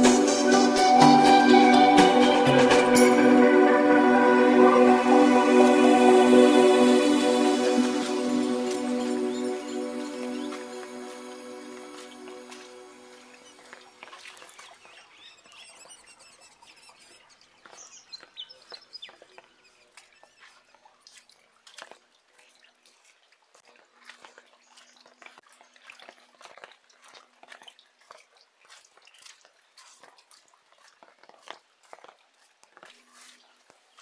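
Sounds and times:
raindrops dripping into puddles: 0:05.0 - 0:15.7, 0:16.5 - 0:34.0
bird chirps: 0:08.5 - 0:12.4, 0:13.1 - 0:20.8.

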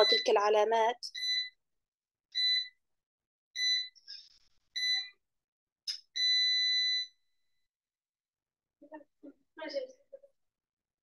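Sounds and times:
electronic beeper beeping: 0:00.0 - 0:00.5.

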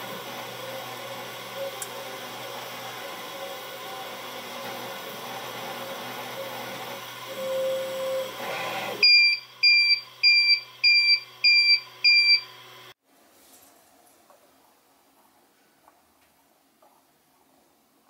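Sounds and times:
printer motor whine: 0:00.0 - 0:13.0.

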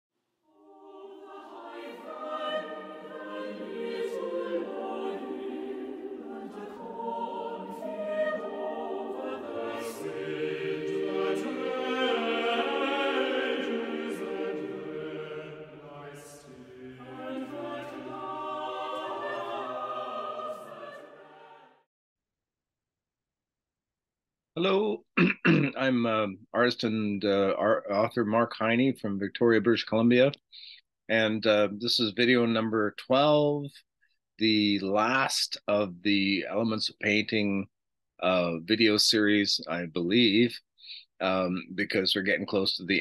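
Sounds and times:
choir singing sustained chords: 0:00.5 - 0:21.9.

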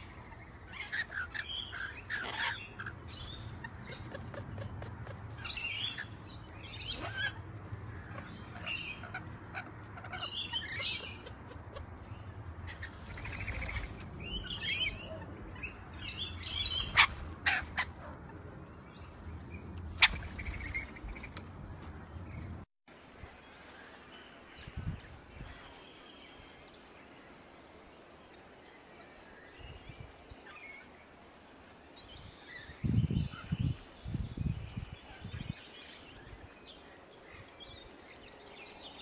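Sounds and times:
lorikeets chattering shrill chirps: 0:00.0 - 0:04.7, 0:05.4 - 0:11.4, 0:12.1 - 0:18.0.

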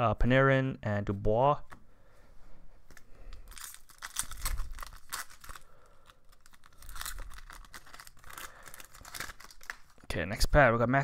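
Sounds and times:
wrapper tearing and crinkling: 0:03.4 - 0:10.1.

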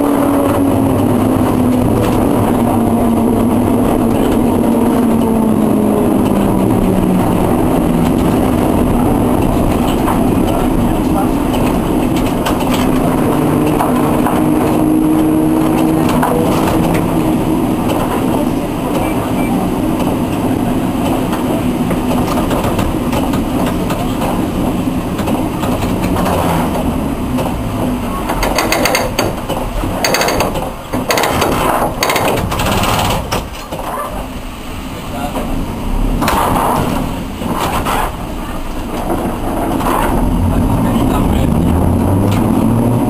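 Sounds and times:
tram motor and wheel noise: 0:00.0 - 0:43.0
sharp knocks and clatter: 0:08.0 - 0:18.3, 0:20.0 - 0:33.9.

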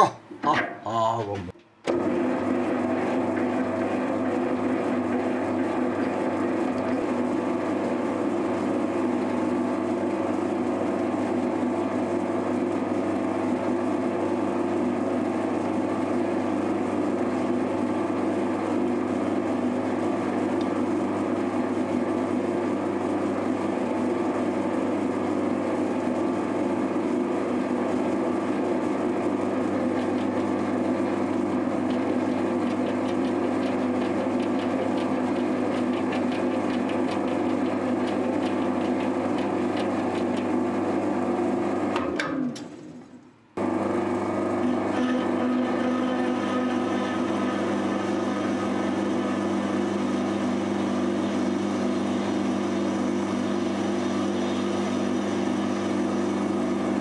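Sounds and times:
metal lathe motor humming: 0:01.9 - 0:10.0, 0:28.5 - 0:41.6, 0:43.6 - 0:57.0.

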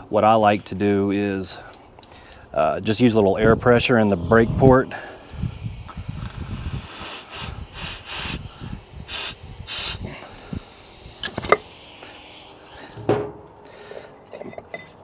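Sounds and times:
compressed air hissing: 0:03.4 - 0:14.1
sharp metal clicks: 0:10.5 - 0:12.2
metal knock: 0:13.0 - 0:13.5.

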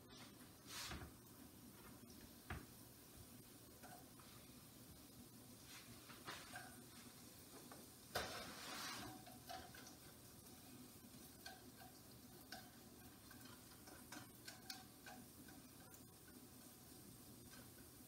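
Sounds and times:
carrots sizzling in a frying pan: 0:01.2 - 0:18.0
utensil clicking against pan: 0:09.0 - 0:18.0.

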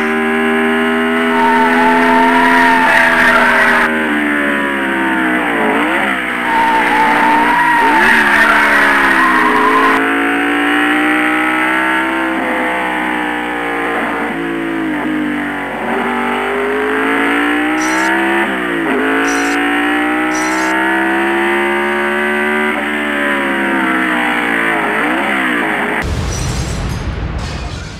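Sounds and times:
race car engine revving: 0:00.0 - 0:26.0
tyre squeal: 0:01.3 - 0:03.9, 0:06.4 - 0:10.0, 0:17.7 - 0:18.2, 0:19.0 - 0:19.7, 0:20.3 - 0:20.8.

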